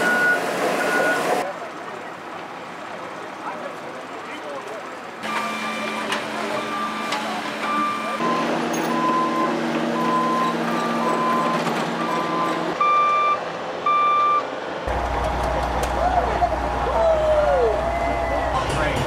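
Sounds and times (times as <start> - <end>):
backup alarms beeping: 0.0 - 1.4, 5.2 - 14.5.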